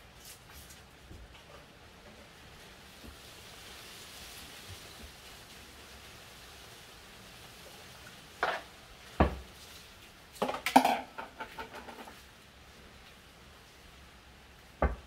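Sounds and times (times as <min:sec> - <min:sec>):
containers knocking and clattering: 0:10.4 - 0:12.2.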